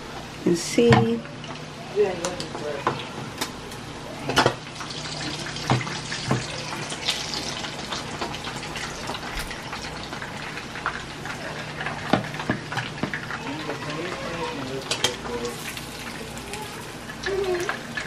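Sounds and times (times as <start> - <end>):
fish sizzling in hot oil: 4.4 - 18.0.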